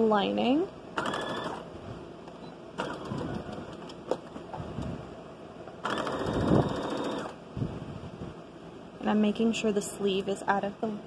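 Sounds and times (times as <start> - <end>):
sewing machine motor whine: 1.0 - 1.6, 2.8 - 3.6, 5.8 - 7.4.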